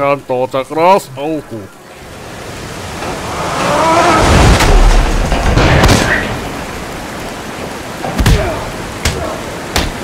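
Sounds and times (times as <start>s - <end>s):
water gushing with deep rumble: 2.4s - 10.0s.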